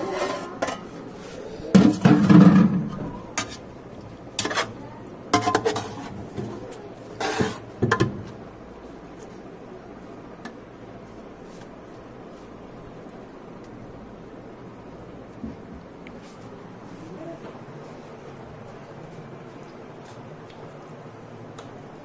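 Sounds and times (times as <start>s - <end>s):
metal spoon scraping a pot: 0.0s - 1.0s, 4.4s - 4.8s, 5.4s - 6.2s, 7.1s - 7.7s.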